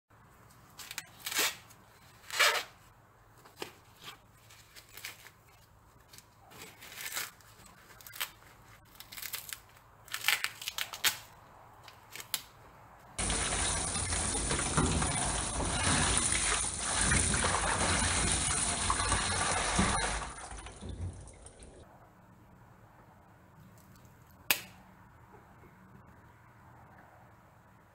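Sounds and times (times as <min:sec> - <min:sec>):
corn husks ripping and crackling: 0:03.5 - 0:12.6
running water rushing: 0:13.2 - 0:21.8.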